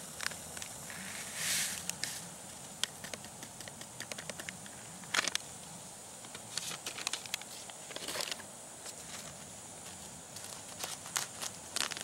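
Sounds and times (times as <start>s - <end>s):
small clicks: 2.8s - 5.5s, 6.2s - 8.5s, 10.4s - 12.0s
foil envelope crinkling: 10.3s - 12.0s.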